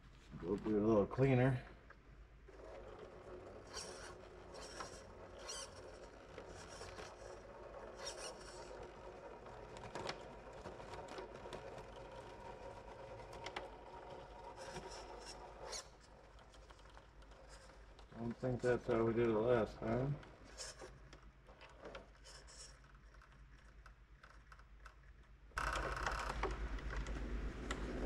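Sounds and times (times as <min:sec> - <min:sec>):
electric motor whine: 0:03.6 - 0:07.3.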